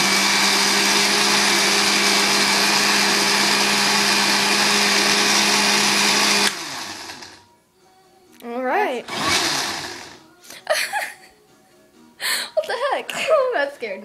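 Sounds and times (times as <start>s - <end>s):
blender motor running: 0.0s - 7.4s, 9.1s - 10.2s.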